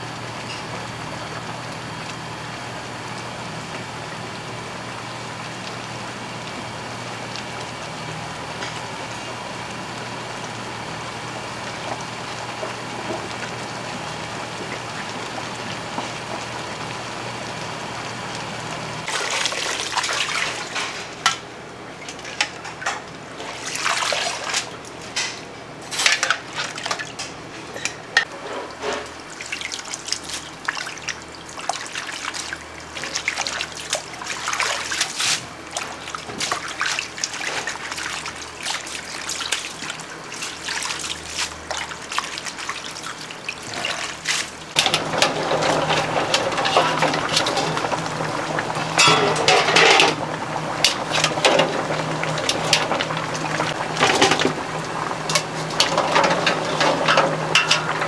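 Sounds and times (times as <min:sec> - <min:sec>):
water running and splashing: 0:05.3 - 0:21.0, 0:23.3 - 0:25.0, 0:29.1 - 0:58.0.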